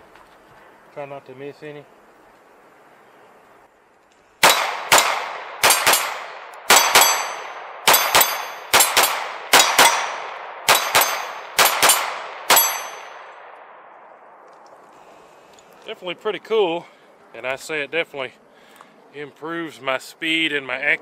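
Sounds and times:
pistol firing double taps: 4.4 - 14.1
steel gong targets ringing: 6.8 - 13.3.

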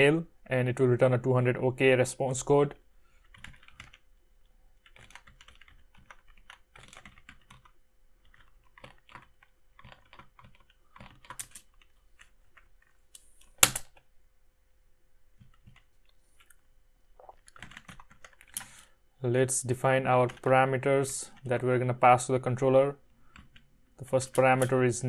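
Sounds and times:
typing on computer keyboard: 3.2 - 4.0, 4.8 - 12.9, 15.4 - 16.5, 17.4 - 18.9, 23.3 - 24.8.

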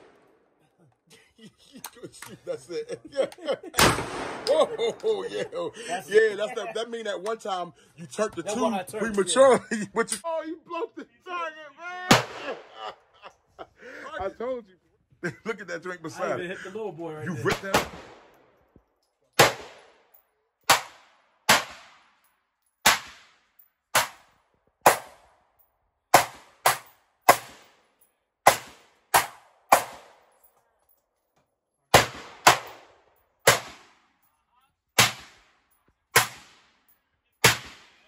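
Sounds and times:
rifle shots echoing: 3.8 - 5.0, 12.1 - 12.7, 19.4 - 20.1, 20.7 - 22.1, 22.8 - 23.4, 24.0 - 25.2, 31.9 - 34.1, 35.0 - 36.8, 37.4 - 38.0.

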